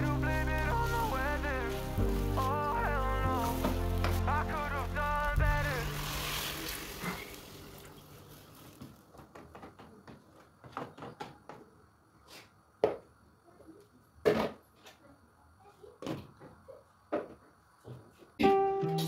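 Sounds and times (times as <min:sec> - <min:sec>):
wooden spoon stirring rice: 0:00.0 - 0:09.0
water pouring into a pot: 0:05.4 - 0:08.9.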